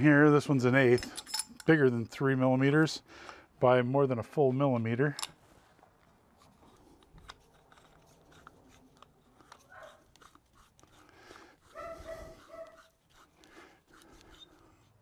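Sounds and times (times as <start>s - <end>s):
small steel parts clicking: 0.9s - 1.8s.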